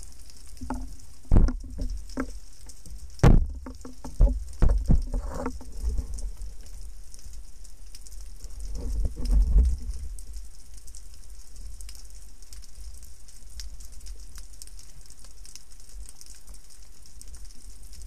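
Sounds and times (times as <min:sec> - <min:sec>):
water rushing underwater: 0:00.0 - 0:10.6
steady fine crackle: 0:00.0 - 0:18.0.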